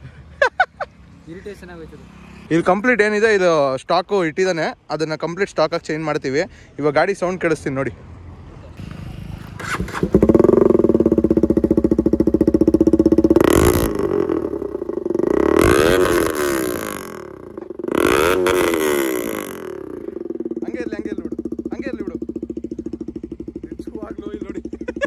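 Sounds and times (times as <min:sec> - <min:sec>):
motorcycle engine revving: 0:08.8 - 0:25.0.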